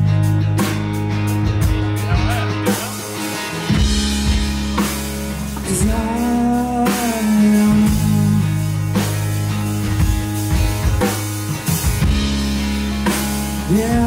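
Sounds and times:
bass guitar: 0.0 - 14.0
drum kit beat: 0.0 - 14.0
electric guitar: 0.0 - 14.0.

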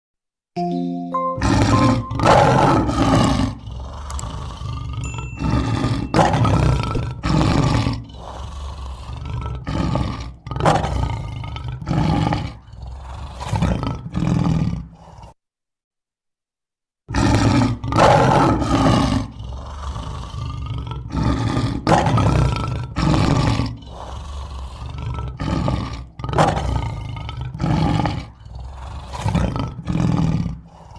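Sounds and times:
lion roaring: 1.4 - 15.4, 17.1 - 30.9.

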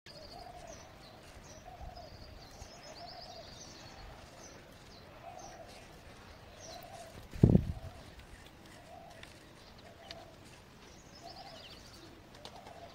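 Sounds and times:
small birds chirping: 0.1 - 12.9
dove cooing: 5.1 - 10.6, 11.2 - 12.9.

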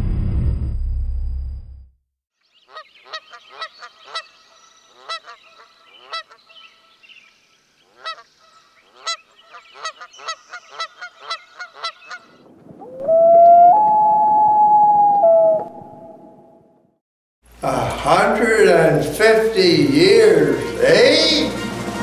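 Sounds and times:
geese honking: 2.7 - 6.6, 7.9 - 12.3.

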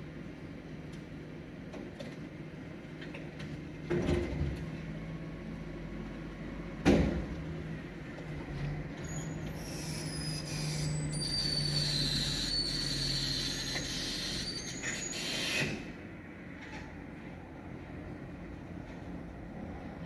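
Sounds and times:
hydraulic packer squealing and grinding: 8.9 - 16.0.

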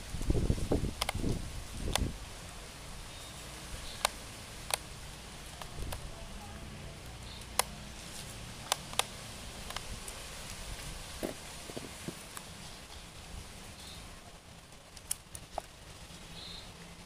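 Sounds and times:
low steady background noise: 0.0 - 17.0.

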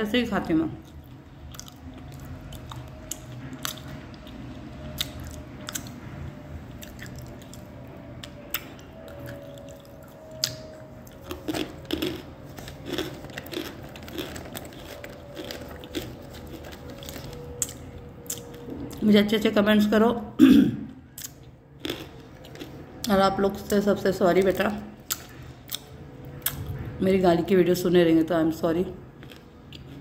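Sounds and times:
crunchy chewing: 0.8 - 19.0, 21.2 - 23.7, 29.0 - 30.0.

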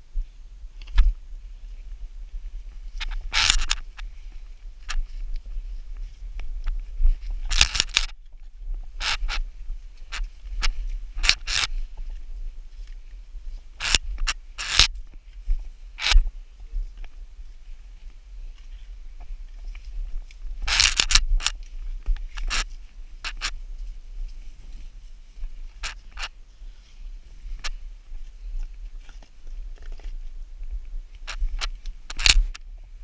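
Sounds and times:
scraping against rock: 2.9 - 12.2, 18.6 - 23.6.

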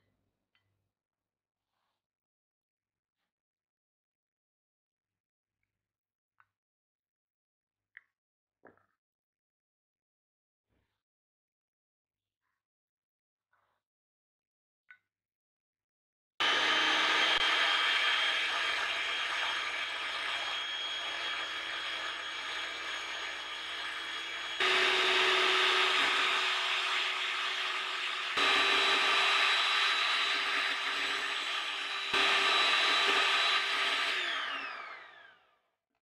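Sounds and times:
electric hand mixer whining: 16.4 - 35.4.

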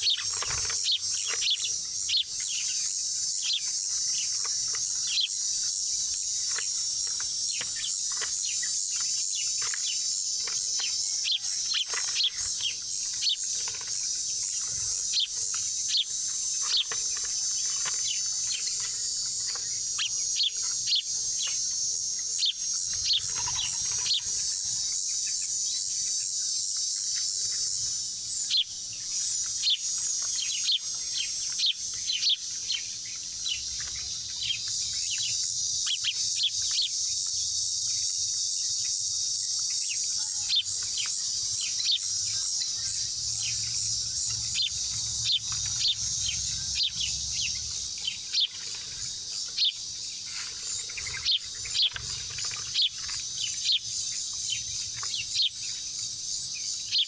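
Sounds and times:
high insect chorus: 0.0 - 57.0.

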